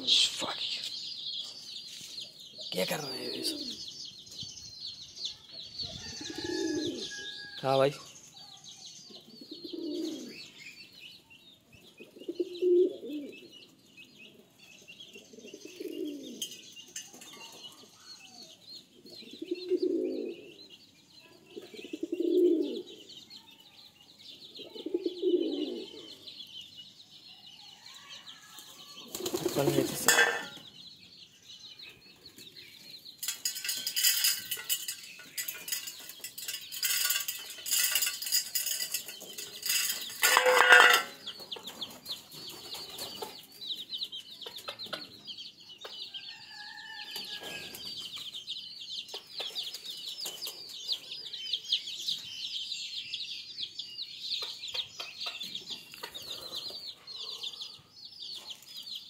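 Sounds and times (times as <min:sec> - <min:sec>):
birds chirping: 0:00.0 - 0:59.0
pigeons cooing: 0:02.5 - 0:03.9, 0:06.0 - 0:07.4, 0:09.2 - 0:10.5, 0:11.8 - 0:13.6, 0:14.2 - 0:20.7, 0:21.5 - 0:23.2, 0:24.4 - 0:26.3, 0:29.0 - 0:30.7, 0:33.2 - 0:43.4, 0:55.9 - 0:57.9
wing flapping: 0:29.1 - 0:30.3
rapid clicking and rattling: 0:33.2 - 0:41.1.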